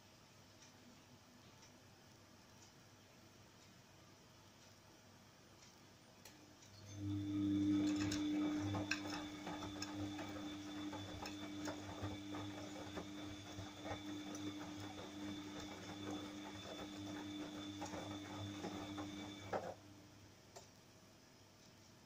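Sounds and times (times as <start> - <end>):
washing machine motor hum: 6.7 - 20.6
laundry clicking in drum: 7.6 - 19.8.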